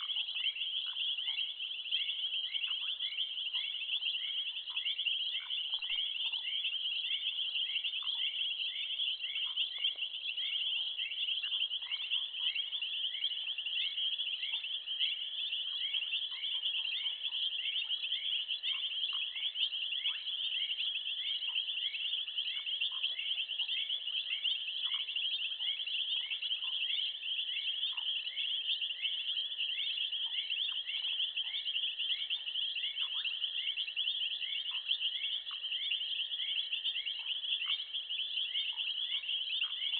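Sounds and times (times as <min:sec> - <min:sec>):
insect chirp: 0:00.0 - 0:39.9.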